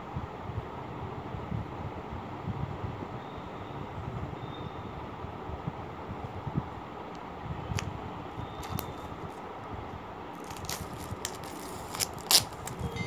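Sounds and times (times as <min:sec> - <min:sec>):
plastic shrink-wrap crinkling: 0:08.6 - 0:09.0, 0:10.4 - 0:13.0.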